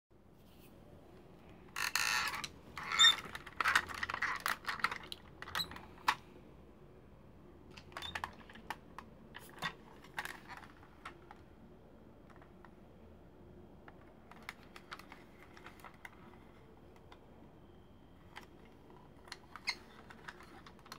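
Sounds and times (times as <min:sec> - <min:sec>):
plastic toy parts clicking: 0:01.8 - 0:06.2, 0:18.3 - 0:20.9.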